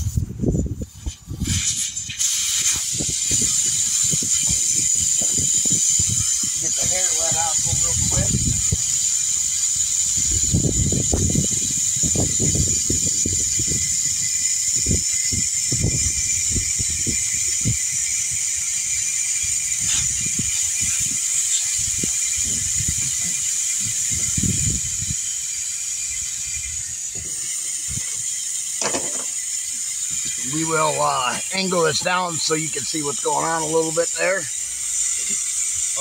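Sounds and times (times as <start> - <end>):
wind buffeting microphone: 0.0 - 28.3
steady high hiss: 0.0 - 36.0.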